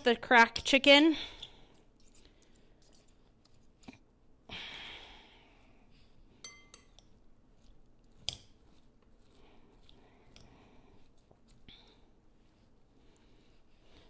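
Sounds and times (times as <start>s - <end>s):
forks clinking against glass: 6.4s - 7.1s.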